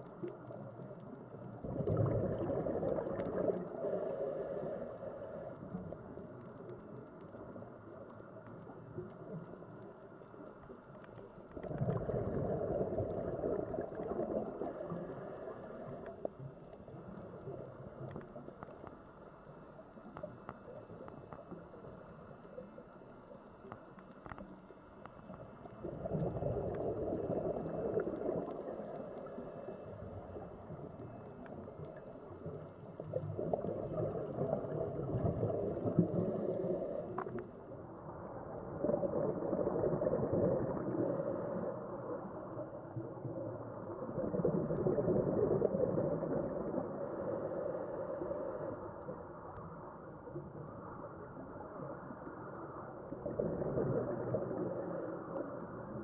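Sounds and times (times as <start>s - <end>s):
underwater bubbling rumble: 0.0s - 56.0s
watery hiss: 2.8s - 5.6s, 13.6s - 16.3s, 35.8s - 37.3s, 47.0s - 48.8s.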